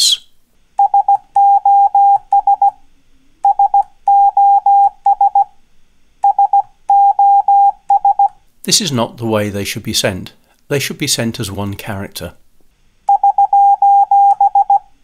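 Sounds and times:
morse code beeping: 0.8 - 2.7, 6.2 - 8.3, 13.1 - 14.8.

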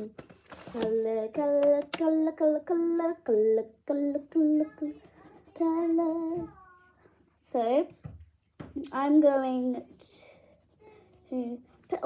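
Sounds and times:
girl singing wordless tune: 0.7 - 7.6.

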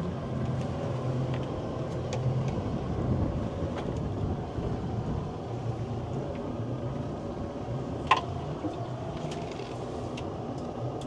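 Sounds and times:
boat diesel engine running: 0.0 - 11.0
wind on microphone: 1.2 - 9.2.

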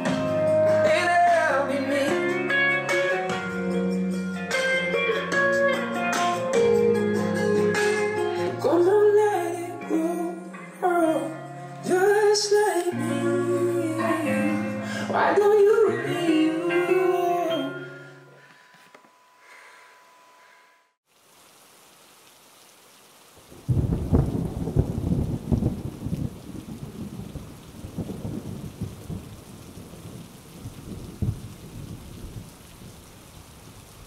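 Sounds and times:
music: 0.0 - 19.5
steady hiss: 20.4 - 24.2.

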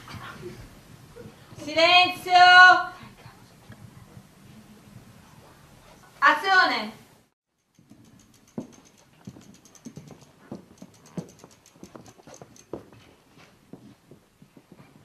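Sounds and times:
bicycle freewheel ticking: 7.6 - 12.8
footsteps: 7.8 - 15.0.

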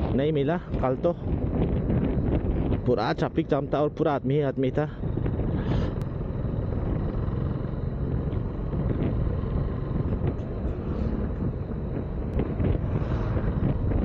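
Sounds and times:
wind rush on microphone: 0.0 - 14.0
motorcycle engine running: 5.0 - 14.0.

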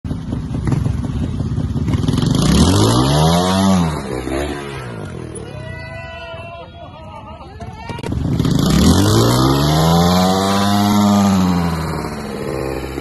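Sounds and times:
motorcycle engine revving: 0.0 - 5.6, 7.9 - 13.0.

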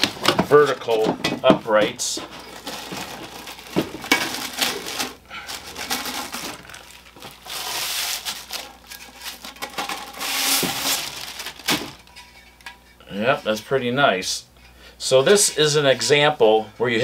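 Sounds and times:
packaging crinkling: 2.2 - 12.1.

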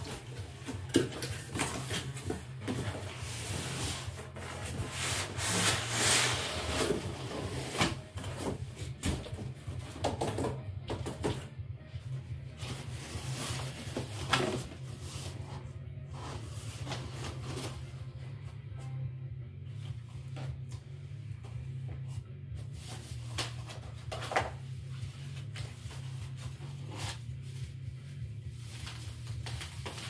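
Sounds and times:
cardboard box scraping: 0.0 - 8.7.

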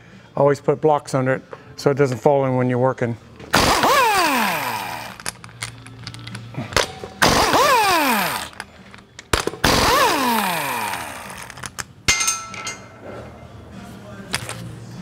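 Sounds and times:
impact wrench whirring: 3.5 - 5.4, 7.2 - 8.7, 9.4 - 11.8.

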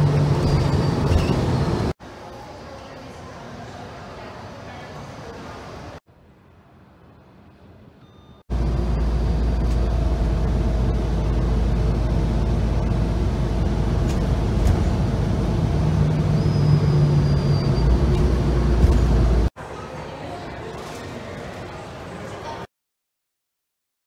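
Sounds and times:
car road and wind rumble: 0.0 - 2.0, 8.5 - 19.5.

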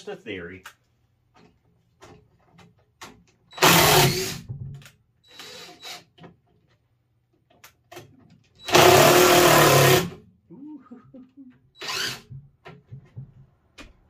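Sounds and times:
power drill running: 3.5 - 4.4, 5.3 - 6.1, 8.6 - 10.2, 11.8 - 12.3.

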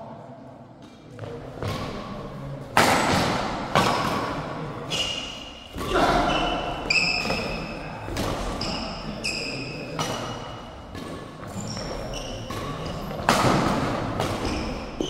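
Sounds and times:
racket striking shuttlecock: 2.7 - 4.5, 11.8 - 15.0
shoes squeaking on court: 4.9 - 13.3, 14.2 - 15.0.

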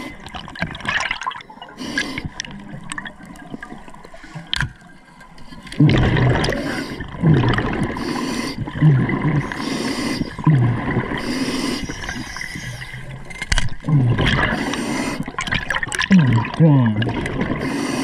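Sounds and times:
bubbly gurgling regulator exhale: 5.7 - 18.0
hissing regulator inhale: 7.9 - 8.7, 9.4 - 10.5, 11.2 - 13.1, 17.6 - 18.0.

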